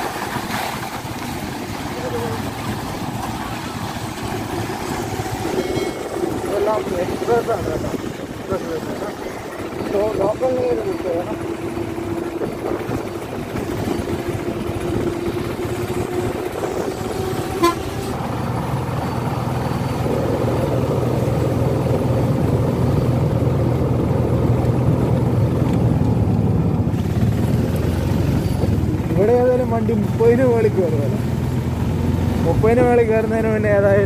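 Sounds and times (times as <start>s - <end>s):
auto-rickshaw engine running: 0.0s - 34.0s
road noise: 0.0s - 34.0s
short horn toot: 17.4s - 18.2s.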